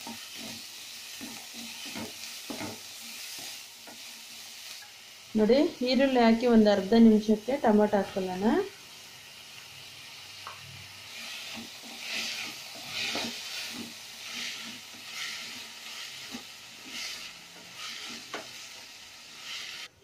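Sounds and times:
spatula scraping pan: 0.0s - 4.1s, 11.1s - 19.9s
vegetables sizzling in oil: 0.0s - 20.0s.

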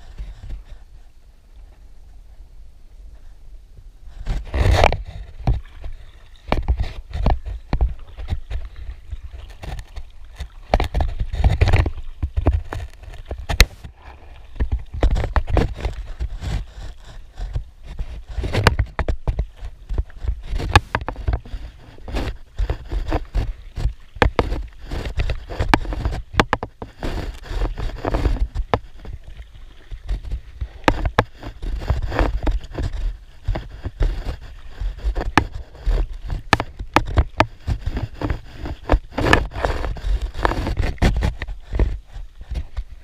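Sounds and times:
paddle splashing in water: 4.2s - 43.0s
small knocks and clicks: 9.4s - 13.9s, 18.3s - 29.2s, 30.0s - 34.4s, 35.0s - 42.9s.

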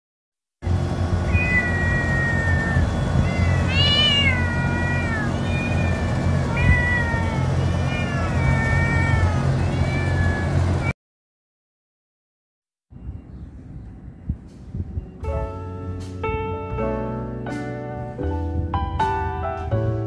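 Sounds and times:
steady low rumble: 0.6s - 10.8s, 12.9s - 19.0s
cats meowing: 1.2s - 10.9s.

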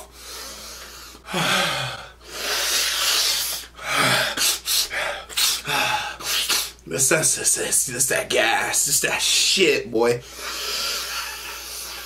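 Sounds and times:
man breathing heavily: 0.0s - 6.8s, 10.2s - 12.0s.

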